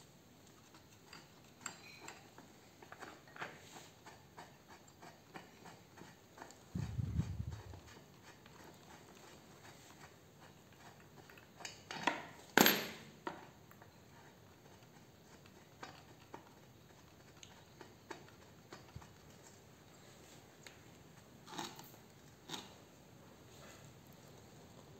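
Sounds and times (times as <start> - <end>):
small clicks and clinks: 0.4 - 3.5.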